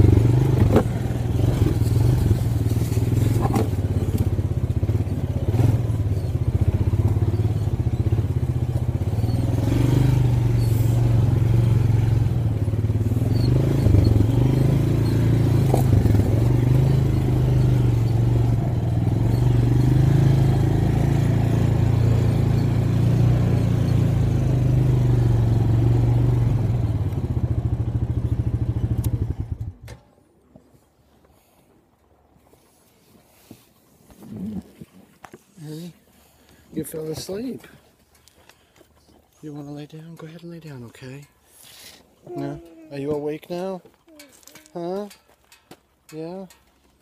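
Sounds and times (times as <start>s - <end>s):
atv engine running: 0.0s - 30.0s, 34.2s - 46.0s
knocks from bumps: 0.5s - 1.0s.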